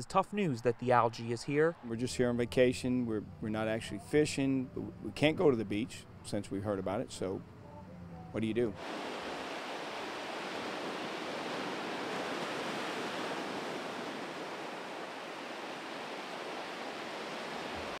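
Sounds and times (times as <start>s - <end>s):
small waves on sandy beach: 8.8s - 18.0s.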